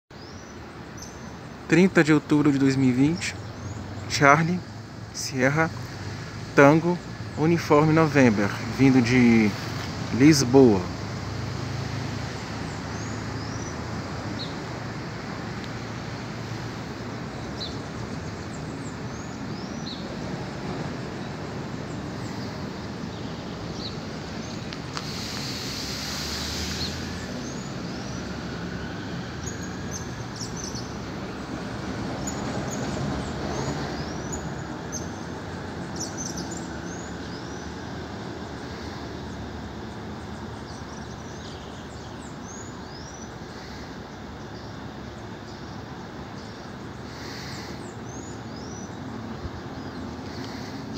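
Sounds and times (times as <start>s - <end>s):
distant traffic rumble: 0.1s - 50.9s
brief hiss: 24.9s - 27.3s.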